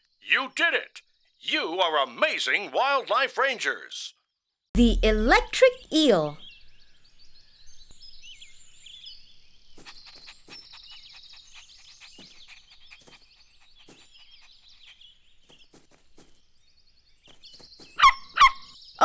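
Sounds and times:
small birds chirping: 4.9s - 19.0s.

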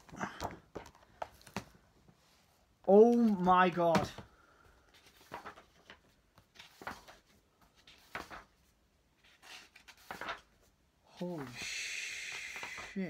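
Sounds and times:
book pages flicking: 9.4s - 10.5s.

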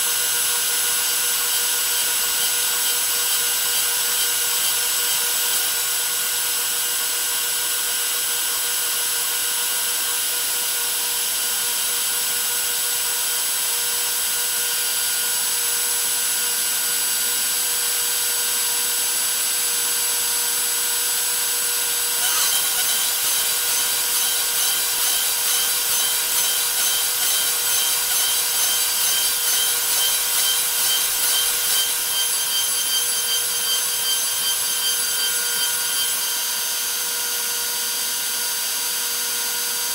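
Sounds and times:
router milling aluminium: 0.0s - 10.4s, 19.2s - 38.6s.

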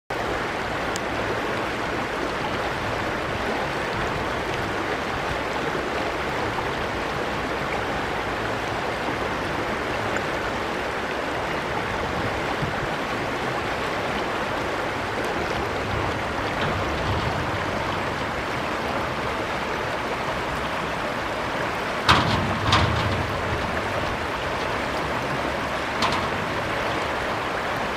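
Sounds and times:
stream water flowing: 0.1s - 27.9s.

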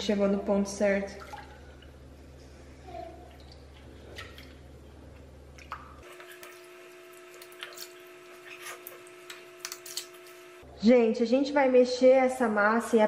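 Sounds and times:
water splashing and dripping: 1.1s - 2.0s, 3.2s - 9.3s.

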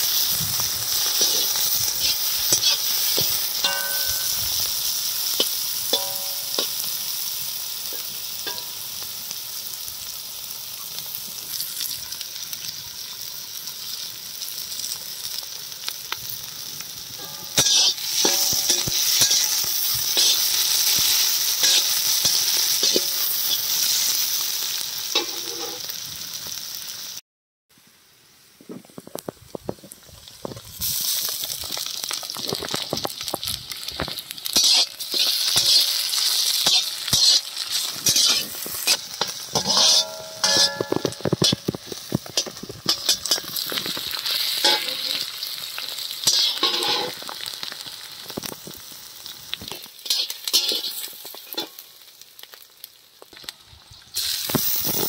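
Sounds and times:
onions sizzling in hot oil: 0.0s - 27.2s, 27.8s - 55.0s
metal spatula scraping pan: 0.9s - 4.4s, 17.2s - 23.8s, 25.2s - 25.8s, 34.6s - 43.8s, 46.3s - 47.2s, 50.0s - 51.7s.

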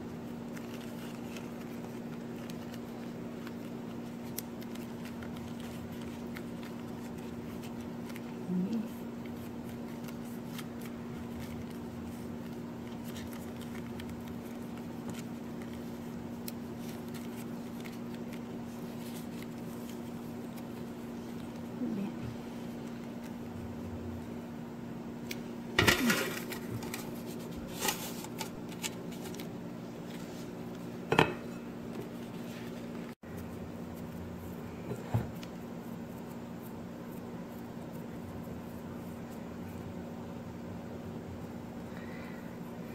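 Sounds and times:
steady low hum: 0.0s - 42.9s
leaves crinkling: 0.1s - 22.0s.

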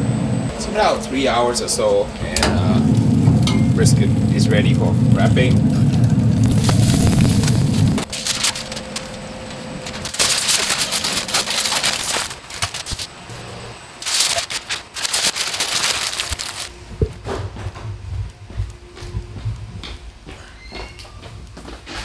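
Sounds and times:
aluminium foil crinkling: 3.8s - 13.2s, 14.0s - 16.8s.

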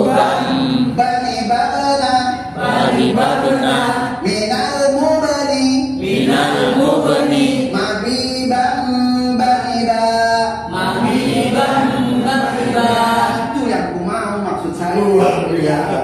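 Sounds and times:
voices chanting in unison: 0.0s - 1.0s, 2.5s - 4.2s, 6.0s - 7.8s, 10.7s - 13.6s.

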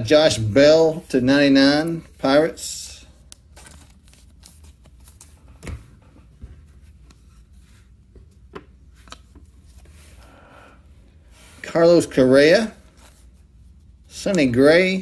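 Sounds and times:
cards rustling and clicking: 3.2s - 5.8s, 8.9s - 10.2s.

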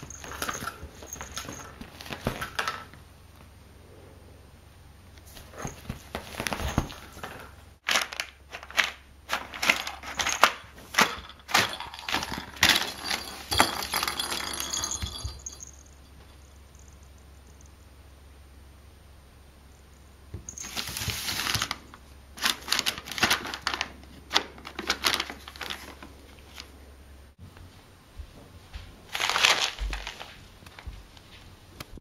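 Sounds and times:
paper bag crinkling: 0.0s - 2.9s, 5.3s - 14.5s, 20.5s - 26.7s, 29.1s - 30.9s.

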